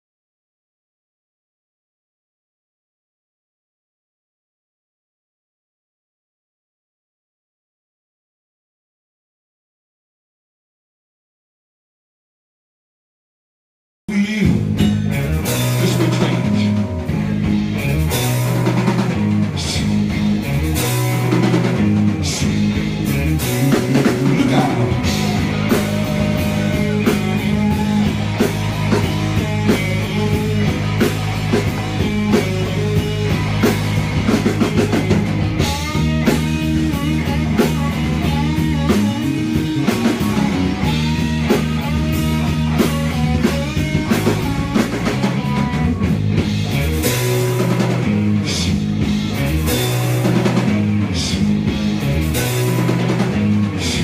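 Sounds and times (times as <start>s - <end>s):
rock band playing: 14.1s - 54.0s.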